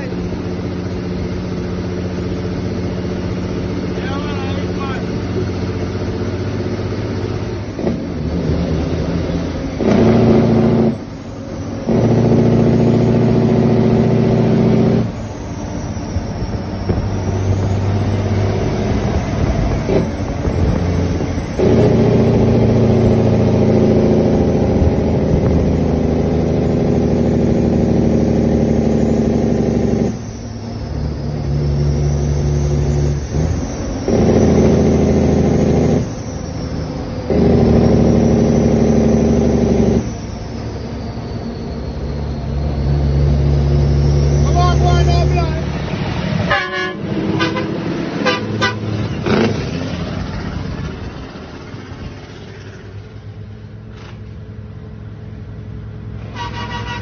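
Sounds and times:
truck diesel engine under load: 0.0s - 57.0s.

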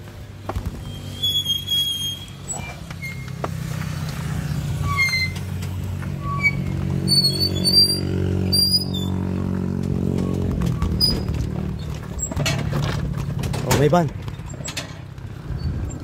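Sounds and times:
motorcycle engine running: 3.7s - 16.0s.

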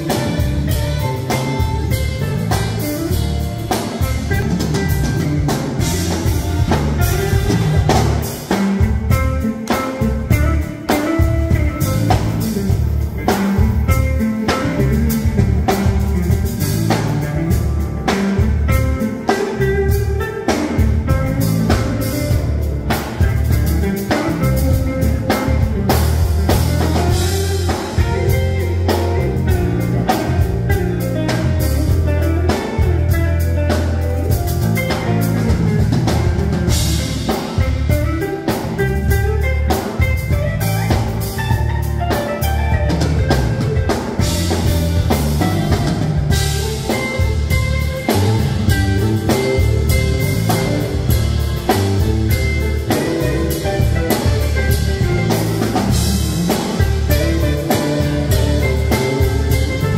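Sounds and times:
live band playing: 0.0s - 59.9s.

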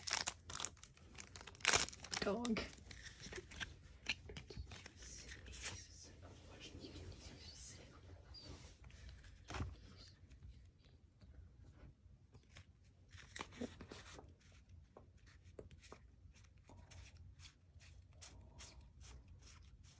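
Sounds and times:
cards flicking and rustling: 0.0s - 5.8s, 12.4s - 19.9s.

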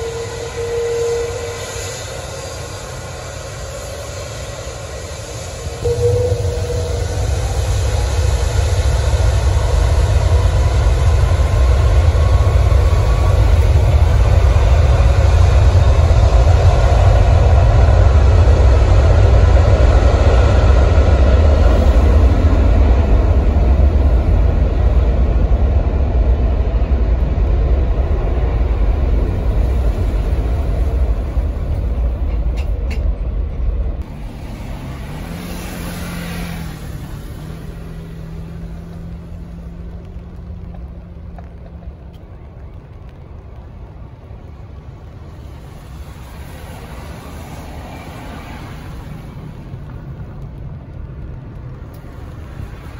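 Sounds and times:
steady hum: 0.0s - 34.6s
deep rumble: 0.0s - 52.9s
jet engines roaring: 0.0s - 52.9s.

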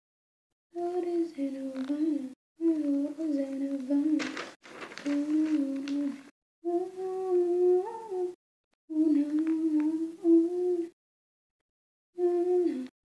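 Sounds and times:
woman humming a melody: 5.1s - 11.0s, 12.2s - 12.9s.

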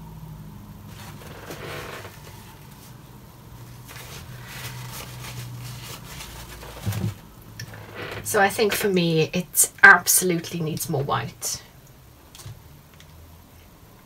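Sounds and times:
low steady hum: 0.0s - 14.0s
faint rustling and scraping: 0.9s - 8.9s.

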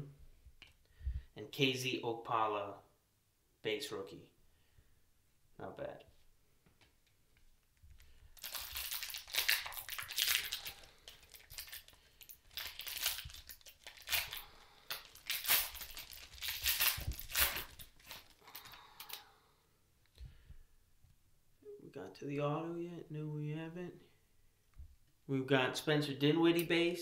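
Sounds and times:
foil wrapper tearing and crinkling: 8.4s - 19.2s.

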